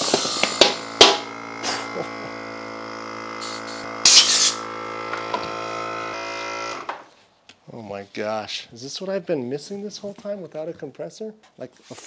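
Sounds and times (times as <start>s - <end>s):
compressor motor humming: 0.0s - 7.1s.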